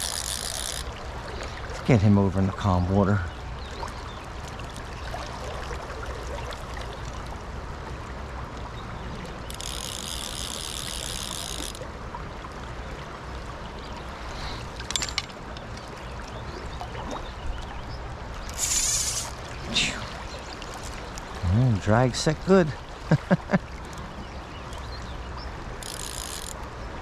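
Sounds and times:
fishing reel drag buzzing: 0.0 - 1.0, 9.5 - 11.8, 18.4 - 19.5, 25.7 - 26.6
river water running: 0.0 - 27.0.

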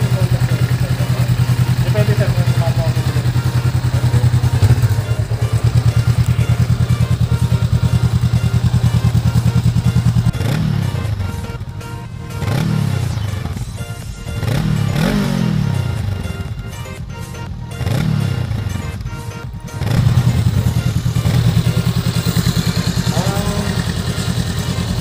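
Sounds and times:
motorcycle engine idling: 0.0 - 25.0
motorcycle engine revving: 0.0 - 25.0.

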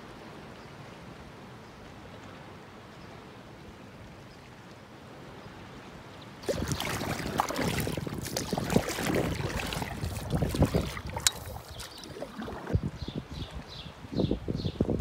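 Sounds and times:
water splashing around dinghy: 6.4 - 13.9
wind on microphone: 6.4 - 15.0.

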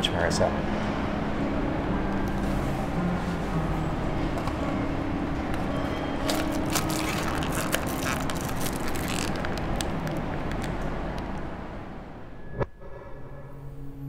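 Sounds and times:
low traffic rumble: 0.0 - 12.8
small clicks and crackles: 6.2 - 11.4.

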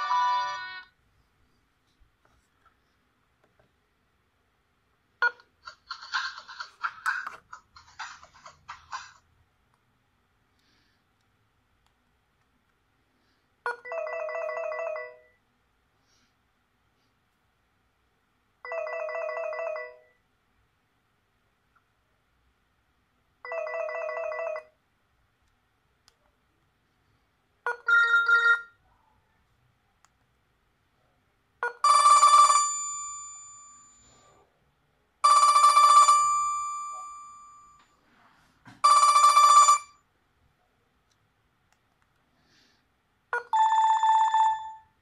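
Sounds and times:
phone ringtone tunes: 0.0 - 0.9, 13.7 - 15.4, 27.7 - 28.7, 31.6 - 34.2, 35.2 - 37.8, 38.8 - 40.0, 43.4 - 44.9.

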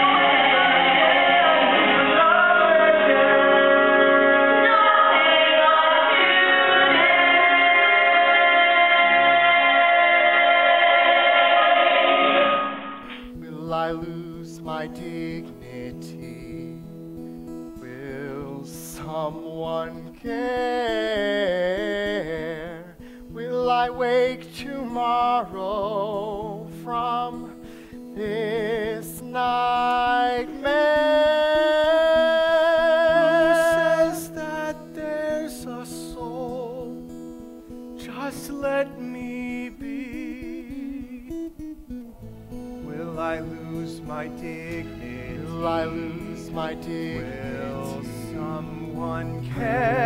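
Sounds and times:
person singing slow song: 0.0 - 50.0
guitar and band chords: 12.2 - 50.0.

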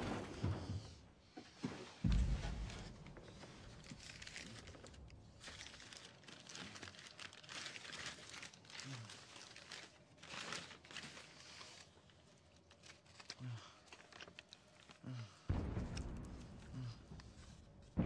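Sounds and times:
paper rustling and crinkling: 2.7 - 15.3.

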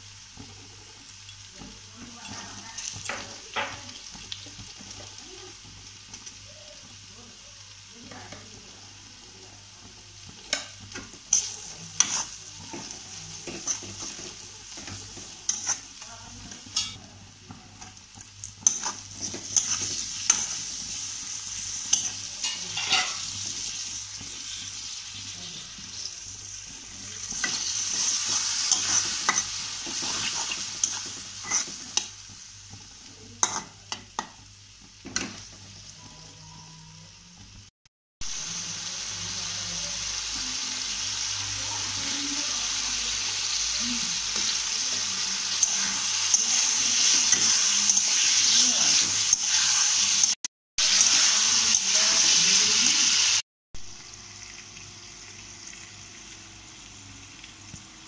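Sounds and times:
onions sizzling in hot oil: 0.0 - 36.2, 37.4 - 58.0
metal spatula scraping pan: 27.2 - 32.0.

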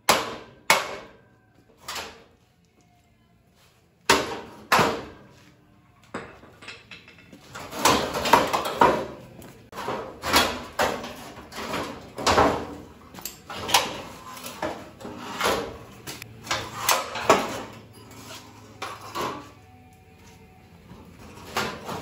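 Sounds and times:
metal scraping: 13.4 - 19.6.

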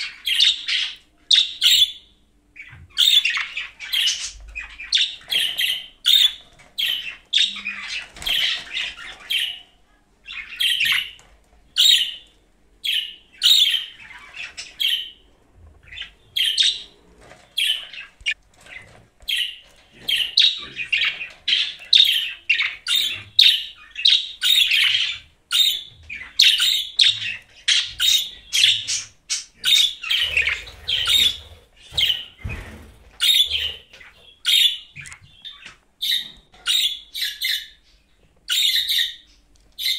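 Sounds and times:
budgerigar chattering and warbling: 19.3 - 32.2, 33.2 - 35.1.

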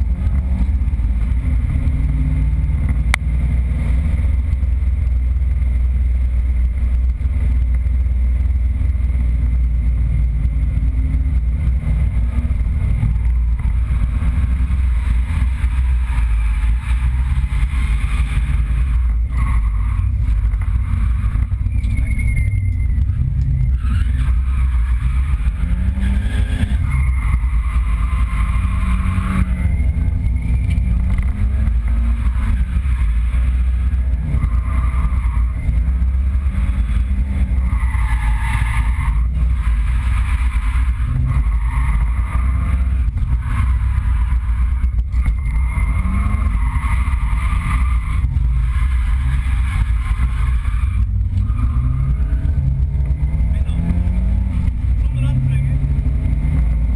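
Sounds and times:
car engine revving: 0.0 - 56.9
tyres squealing: 18.4 - 52.7.

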